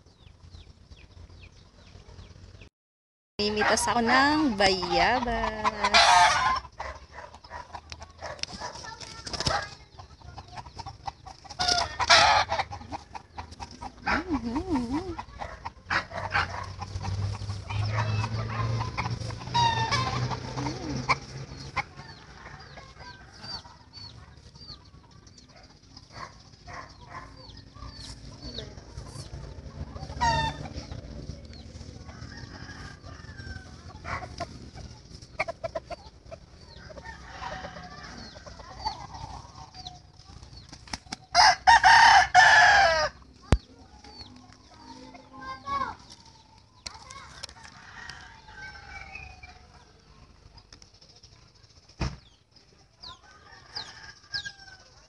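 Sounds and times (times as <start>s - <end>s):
chickens clucking: 0.0s - 2.6s, 3.4s - 41.6s, 42.6s - 55.0s
rooster crowing: 32.0s - 34.2s, 36.7s - 38.7s, 41.3s - 43.2s, 47.6s - 49.5s, 53.2s - 55.0s.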